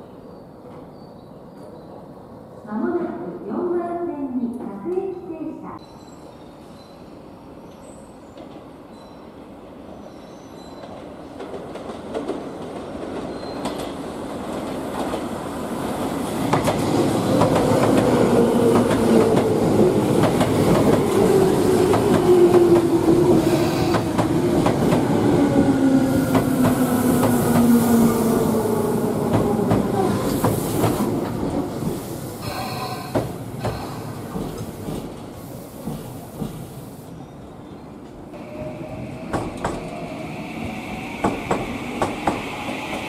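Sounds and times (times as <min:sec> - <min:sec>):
electric train rumble: 0:14.0 - 0:37.0, 0:38.3 - 0:43.0.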